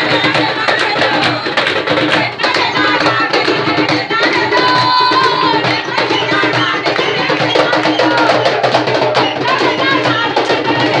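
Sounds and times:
hand drums beating: 0.0 - 11.0
voices singing: 0.0 - 11.0.

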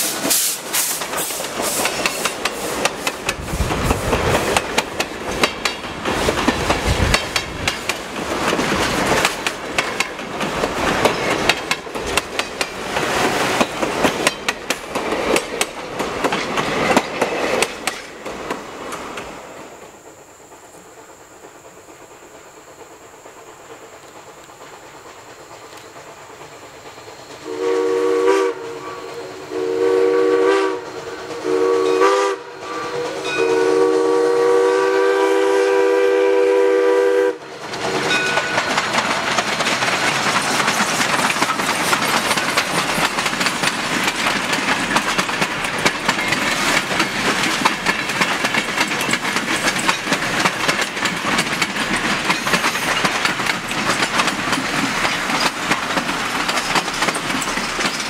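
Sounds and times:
steam whistle blasts: 0.0 - 1.9, 27.4 - 37.5
train wheels clattering over rails: 0.0 - 34.2, 36.2 - 58.0.

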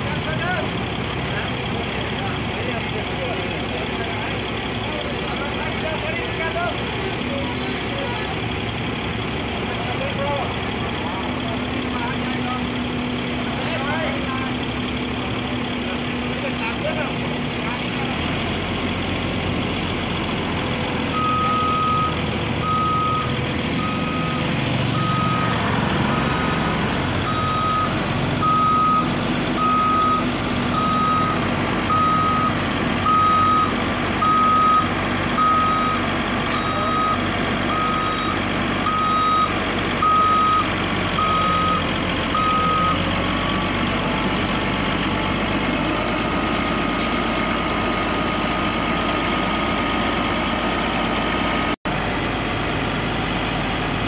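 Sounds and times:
diesel engine running: 0.0 - 54.0
vehicle warning alarm beeping: 21.1 - 26.6, 27.2 - 43.8.

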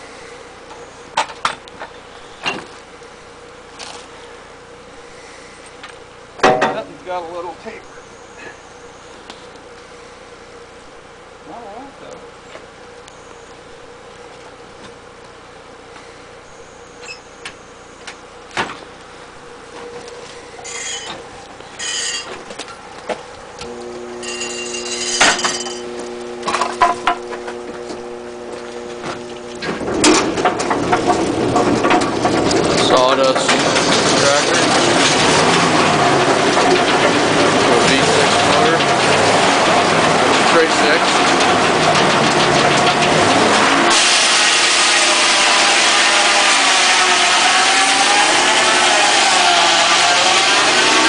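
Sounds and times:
steady machine hum: 0.0 - 51.0
wooden and metal knocks: 6.4 - 6.9
loud rough machine noise: 19.4 - 51.0
saw cutting log with whine: 19.4 - 51.0
circular sawmill blade spinning: 23.4 - 51.0.

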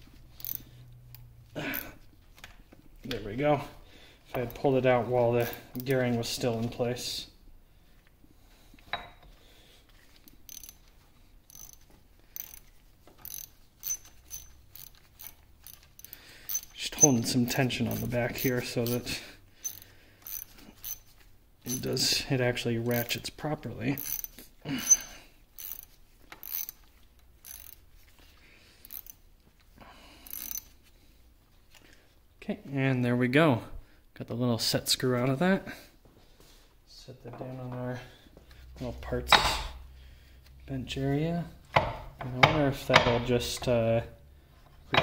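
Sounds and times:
ratchet wrench clicking: 0.3 - 1.8, 10.3 - 10.9, 11.5 - 21.1, 21.7 - 21.9, 22.9 - 23.2, 24.0 - 27.9, 28.8 - 29.2, 30.2 - 30.8.

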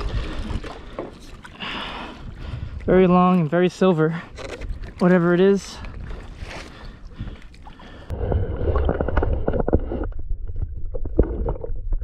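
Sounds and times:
water lapping at a kayak: 0.0 - 12.0
muffled underwater rumble: 6.7 - 12.0.

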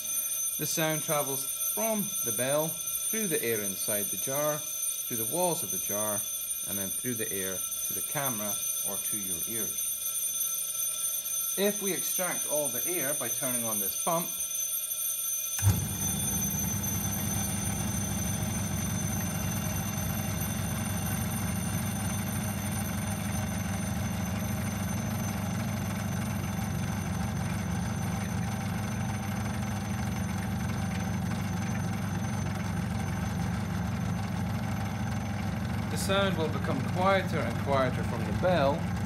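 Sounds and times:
electric bell ringing: 0.0 - 39.0
vacuum pump droning: 15.6 - 39.0.

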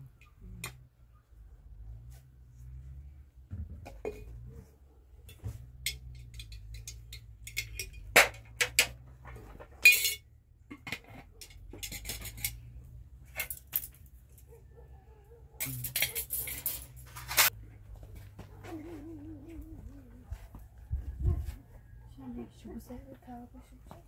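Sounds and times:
hard objects clinking: 5.3 - 9.0, 9.6 - 14.3, 15.6 - 17.5.

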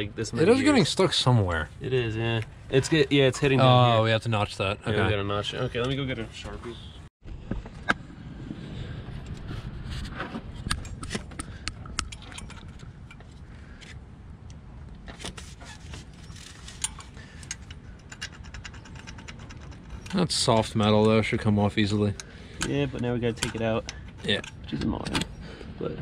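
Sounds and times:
hand handling metal parts: 15.0 - 21.2.

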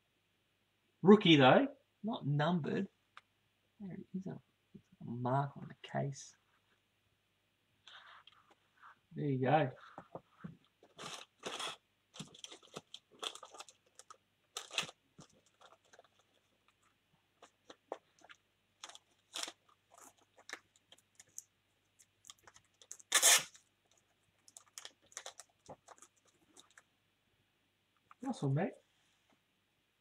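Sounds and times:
plastic sleeve crinkling: 9.8 - 26.9.

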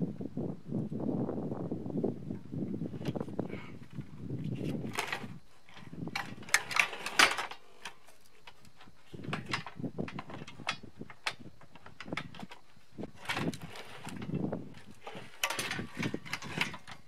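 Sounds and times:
metal tools clicking and scraping: 4.6 - 17.0.

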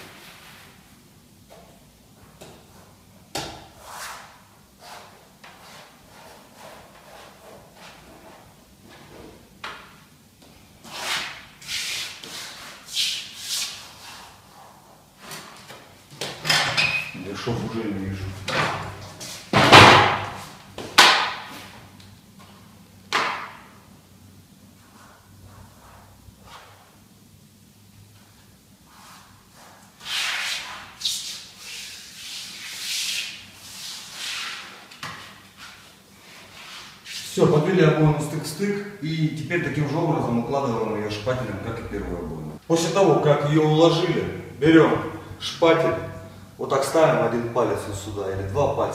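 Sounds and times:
palms rubbing wallpaper: 3.7 - 9.2, 10.8 - 15.7, 28.8 - 37.6.

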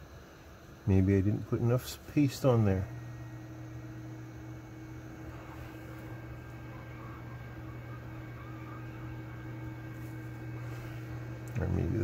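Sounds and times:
hot-air station hissing hum: 0.0 - 12.0.

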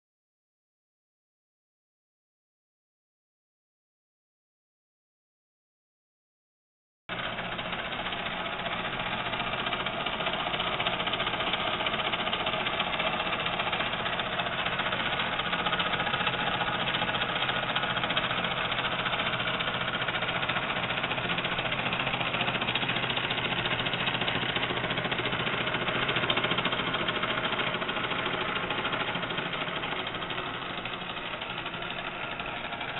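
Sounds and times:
toy steam engine hissing: 7.9 - 32.9.

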